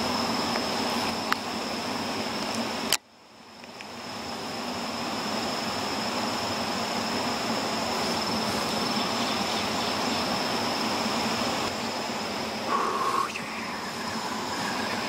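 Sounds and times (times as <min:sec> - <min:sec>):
high-pitched insect whine: 0:00.0 - 0:15.0
steady rushing noise: 0:10.3 - 0:15.0.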